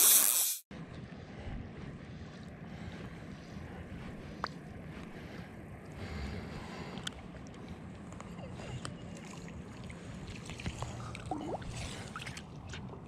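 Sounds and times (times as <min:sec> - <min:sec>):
river water lapping around legs: 0:06.4 - 0:13.0.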